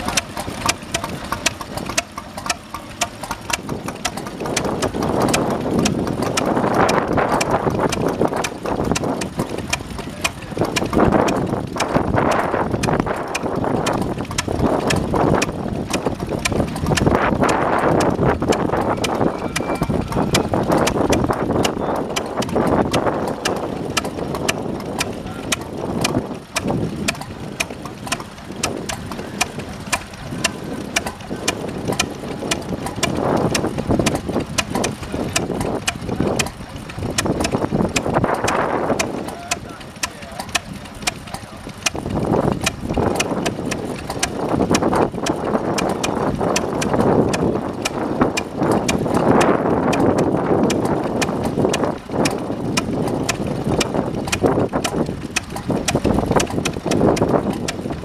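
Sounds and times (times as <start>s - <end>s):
stationary engine exhaust knocks: 0.0s - 58.0s
people talking: 10.0s - 11.3s, 25.0s - 26.1s, 30.4s - 31.8s, 35.9s - 37.2s, 38.2s - 41.9s.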